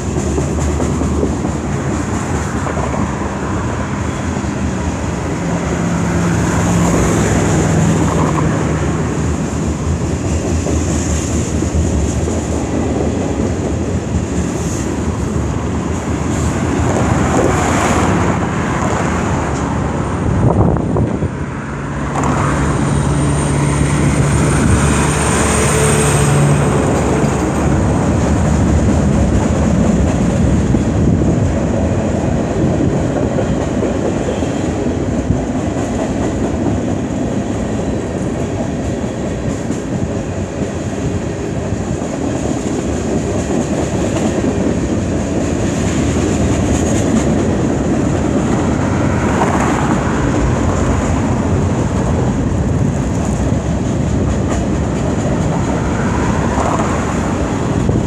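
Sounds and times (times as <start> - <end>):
steel wheels rolling on rails: 22.1 - 58.0.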